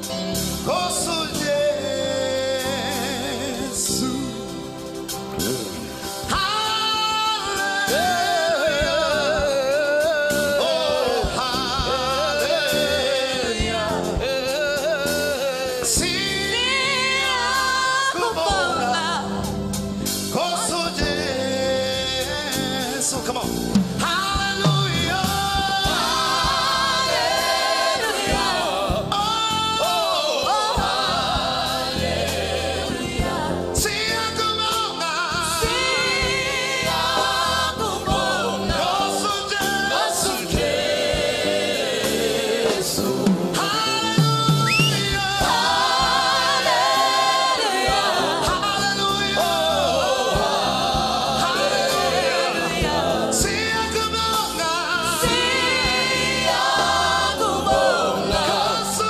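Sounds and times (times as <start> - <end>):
group singing gospel: 0.0 - 59.0.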